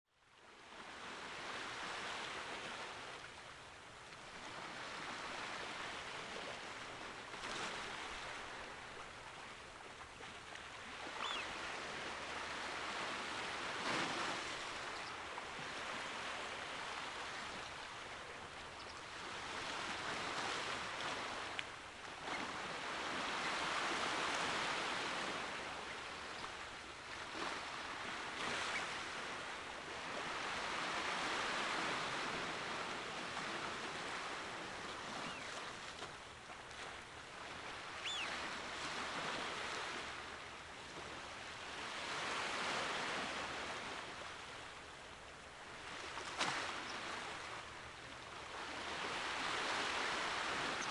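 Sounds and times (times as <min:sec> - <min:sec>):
small waves washing on rocky shore: 0:45.6 - 0:50.9.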